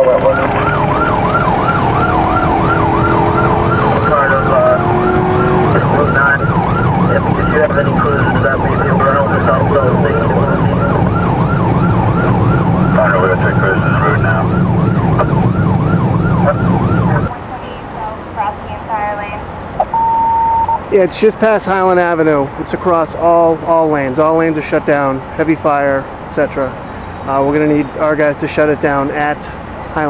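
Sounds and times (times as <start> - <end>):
police siren yelp: 0.0 - 21.0
engine and road noise: 0.0 - 30.0.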